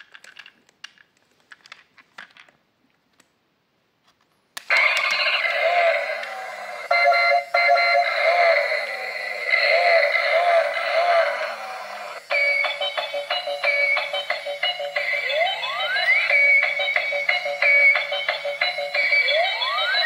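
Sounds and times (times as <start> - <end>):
loud electronic music: 4.7 - 20.0.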